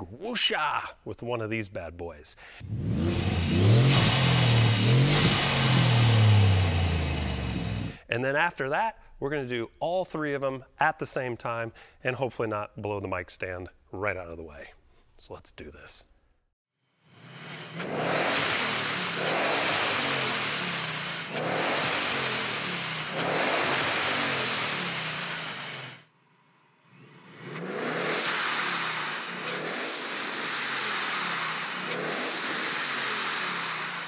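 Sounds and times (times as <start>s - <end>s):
blow-off valve whooshing hiss: 2.6s - 8.0s, 17.4s - 26.0s, 26.8s - 34.0s
car engine revving: 2.6s - 8.0s, 17.1s - 26.1s, 26.8s - 34.0s.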